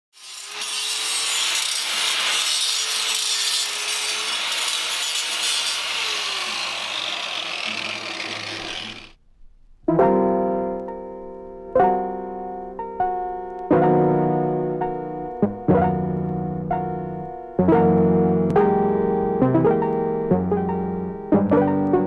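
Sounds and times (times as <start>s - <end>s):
piano playing: 9.9s - 22.0s.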